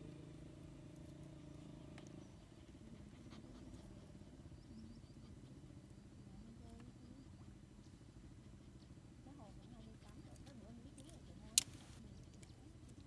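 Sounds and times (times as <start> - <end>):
distant engine droning: 0.0 - 11.6
faint bird chirps: 0.9 - 13.0
dry twigs clicking: 11.5 - 12.5.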